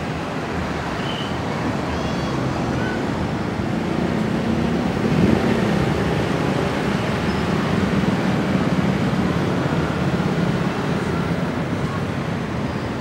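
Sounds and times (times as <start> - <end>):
diesel locomotive engine running: 0.0 - 13.0.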